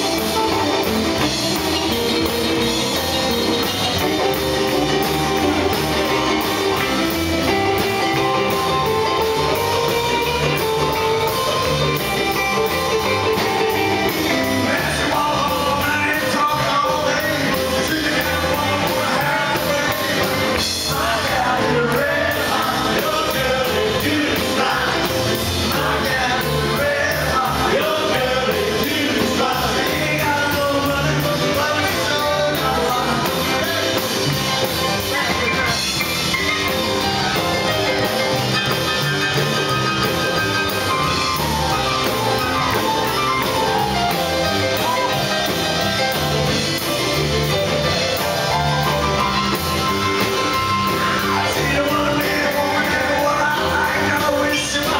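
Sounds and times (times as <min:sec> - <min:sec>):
drum kit fast beat: 0:00.0 - 0:54.9
piano: 0:00.0 - 0:54.9
man singing: 0:12.9 - 0:35.9, 0:50.8 - 0:54.9.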